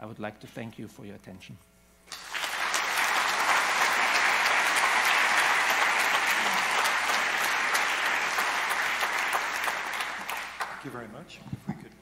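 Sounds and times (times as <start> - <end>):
large audience applauding: 2.1 - 11.0.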